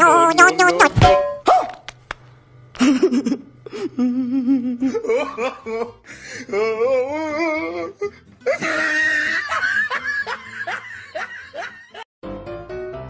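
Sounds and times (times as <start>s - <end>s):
music: 0.0s - 4.3s, 6.0s - 13.0s
laughter sound effect: 2.8s - 6.0s, 8.5s - 12.0s.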